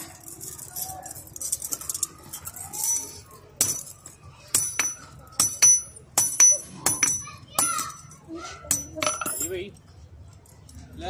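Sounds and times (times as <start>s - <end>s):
chain links jingling: 0.0s - 11.0s
hammer ringing on steel: 4.5s - 9.5s.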